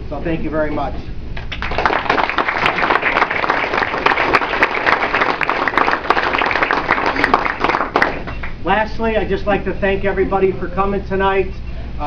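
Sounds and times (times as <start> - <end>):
crowd applauding: 1.5 - 8.6.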